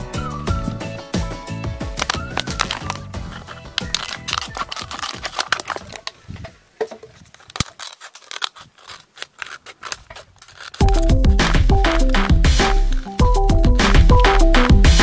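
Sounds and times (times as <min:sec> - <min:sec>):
scissors snipping plastic: 0:01.8 - 0:06.2, 0:07.2 - 0:14.4.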